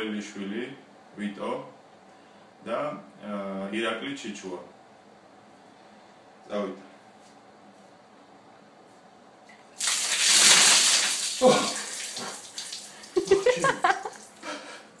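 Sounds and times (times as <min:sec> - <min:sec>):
ice water splashing from bucket: 0:09.8 - 0:14.3
man crying out and gasping: 0:11.4 - 0:11.9.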